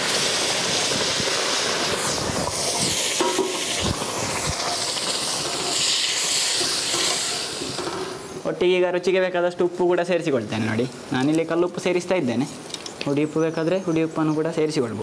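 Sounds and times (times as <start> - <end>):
water hissing into hot pan: 0.0 - 8.4.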